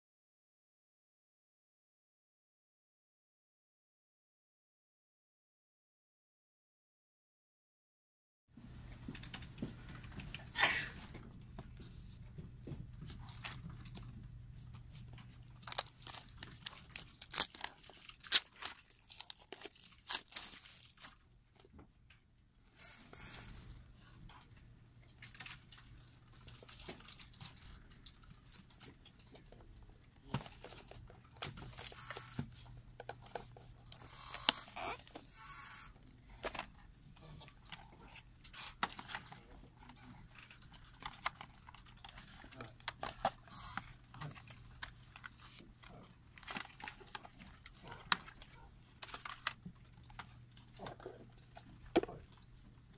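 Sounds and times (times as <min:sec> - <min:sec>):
packaging crinkling and rustling: 0:13.0 - 0:21.2, 0:30.2 - 0:35.2, 0:40.4 - 0:52.2
shrink wrap crackling: 0:14.8 - 0:21.2.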